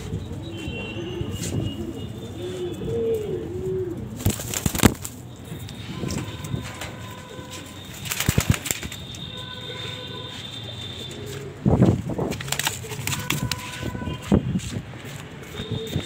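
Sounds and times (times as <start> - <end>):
pigeons cooing: 1.2 - 4.9.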